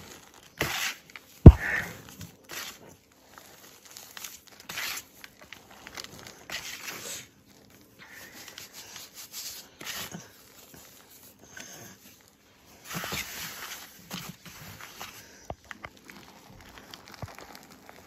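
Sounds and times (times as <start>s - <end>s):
hands rubbing powder in a bowl: 6.4s - 18.0s.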